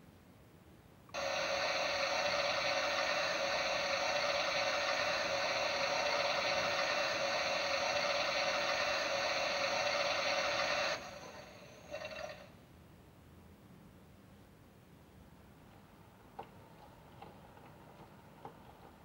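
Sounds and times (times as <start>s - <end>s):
toy washing machine whirring: 1.2s - 12.5s.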